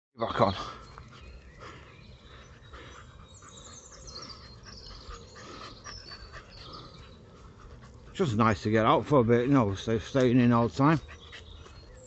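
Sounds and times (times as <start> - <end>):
dog panting: 0.4 - 12.0.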